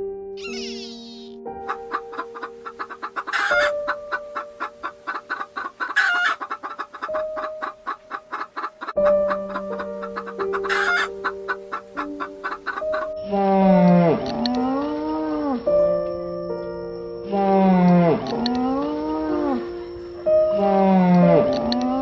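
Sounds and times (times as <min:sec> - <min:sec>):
loud chicken calls: 0:00.4 - 0:13.1
chickens clucking: 0:00.4 - 0:13.3.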